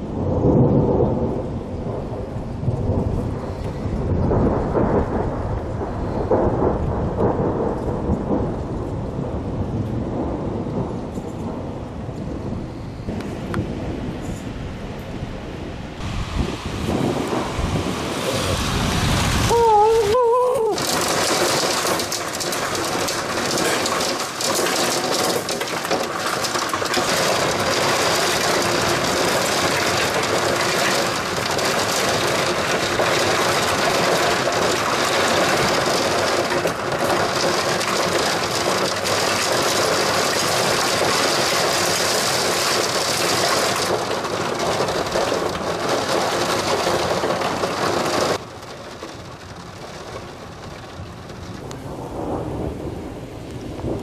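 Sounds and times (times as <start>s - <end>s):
low rumble: 0.0s - 23.9s, 49.0s - 54.0s
heavy rain falling: 0.0s - 54.0s.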